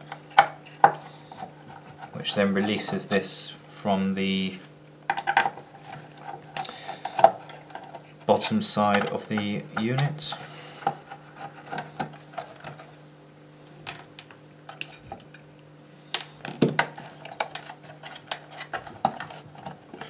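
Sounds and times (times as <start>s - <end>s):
faint low hum: 0.0s - 20.0s.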